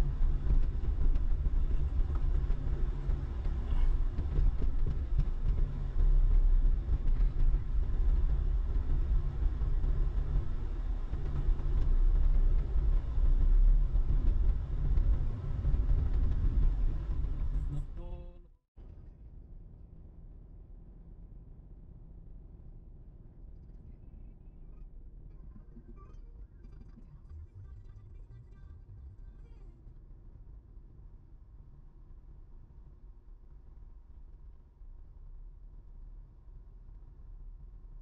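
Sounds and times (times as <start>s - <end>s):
diesel engine and road rumble: 0.0s - 18.4s.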